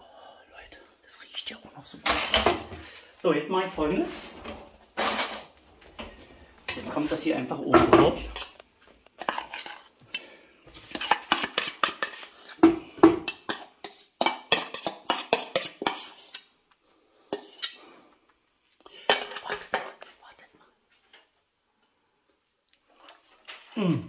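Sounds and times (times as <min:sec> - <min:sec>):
spoon scraping a metal bowl: 0:08.2 - 0:08.6, 0:09.2 - 0:16.6, 0:17.3 - 0:18.0.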